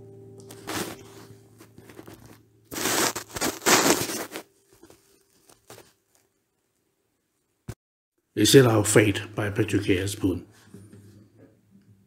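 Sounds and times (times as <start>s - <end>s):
acoustic guitar chord ringing: 0.0s - 2.7s
rustling crinkling noise: 0.4s - 7.5s.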